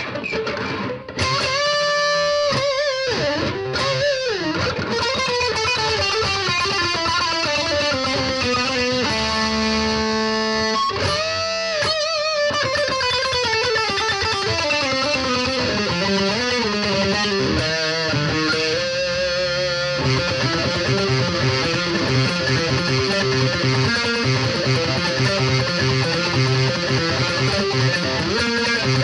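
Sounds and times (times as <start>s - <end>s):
distorted electric guitar lead: 0.0s - 29.0s.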